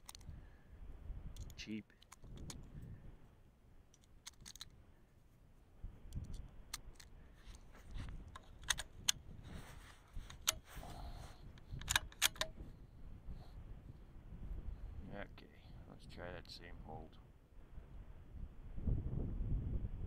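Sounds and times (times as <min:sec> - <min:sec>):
small metallic clicks and snaps: 0:00.0 - 0:00.3, 0:01.3 - 0:02.8, 0:03.9 - 0:04.8, 0:06.1 - 0:09.2, 0:10.2 - 0:10.7, 0:11.5 - 0:12.6
wind rumble on microphone: 0:00.0 - 0:01.6, 0:02.2 - 0:03.3, 0:05.8 - 0:06.8, 0:07.5 - 0:20.0.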